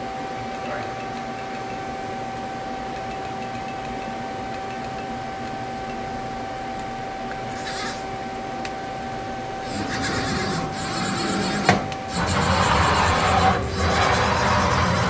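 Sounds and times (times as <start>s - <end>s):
lathe humming: 9.0s - 15.0s
rasping mechanical rushing noise: 9.6s - 15.0s.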